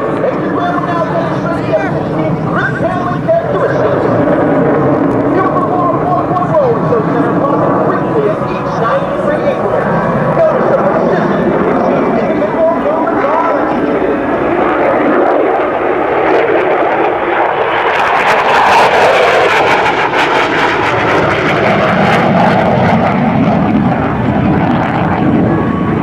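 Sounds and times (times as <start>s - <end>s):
jet passing by: 0.0s - 26.0s.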